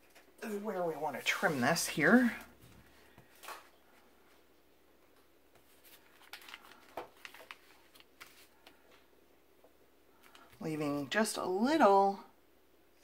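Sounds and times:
paper rustling and tapping: 5.1s - 9.1s.

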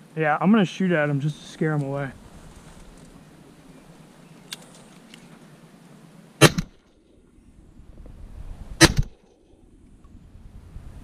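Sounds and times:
shotgun shots: 6.4s - 6.8s, 8.8s - 9.2s.

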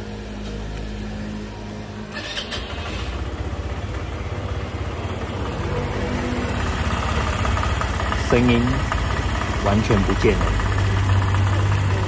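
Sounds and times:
scooter engine starting and idling: 2.0s - 12.0s.

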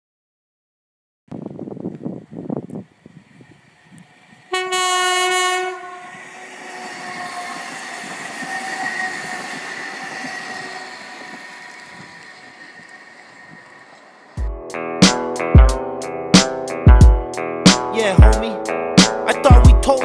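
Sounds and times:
train rolling by: 1.9s - 20.0s
train horn blast: 4.5s - 11.7s.

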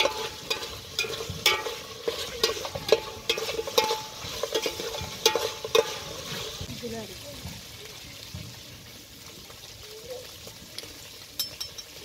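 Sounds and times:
metal ladle clanking in pot: 0.0s - 6.7s
meat sizzling: 0.0s - 12.0s.

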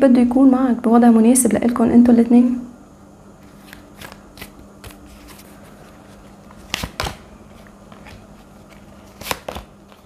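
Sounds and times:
cards flicking: 3.5s - 5.4s, 6.4s - 7.3s, 7.9s - 10.0s
cards snapping on table: 3.6s - 5.0s, 6.6s - 7.3s, 7.9s - 10.0s.

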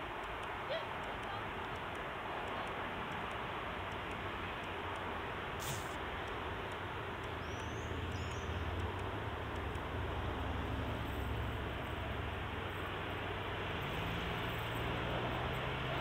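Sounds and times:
outdoor background hiss: 0.0s - 16.0s
faint high-pitched chirp: 7.4s - 8.7s.

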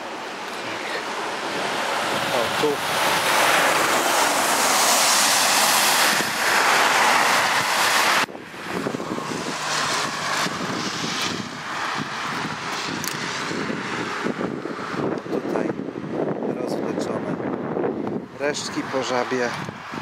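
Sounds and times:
vehicle passing close by: 0.6s - 15.2s.

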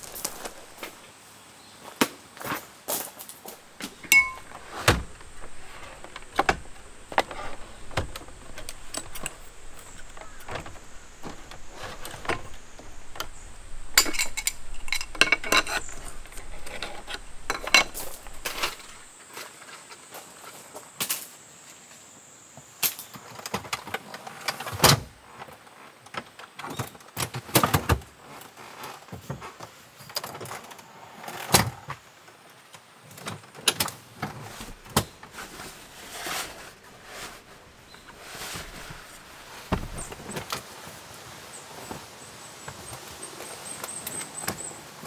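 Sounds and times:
folding table clacking and knocking: 0.0s - 1.0s, 3.6s - 19.1s, 34.2s - 40.5s.

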